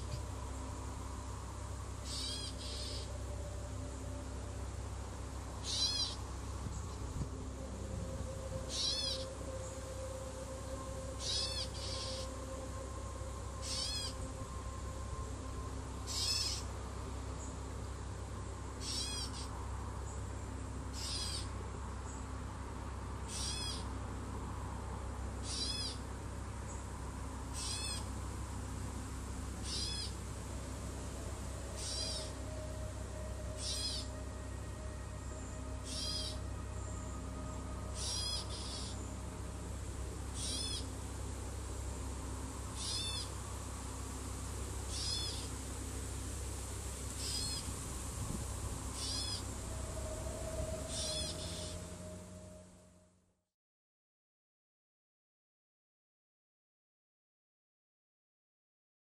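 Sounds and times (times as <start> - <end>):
steady low hum: 0.0 - 53.4
bird high wavering call: 2.0 - 4.6, 5.6 - 17.6, 18.8 - 20.3, 20.9 - 22.2, 23.2 - 24.0, 25.4 - 26.8, 27.5 - 28.2, 29.6 - 30.2, 31.1 - 41.0, 42.6 - 43.5, 44.8 - 45.6, 47.1 - 47.9, 48.5 - 53.0.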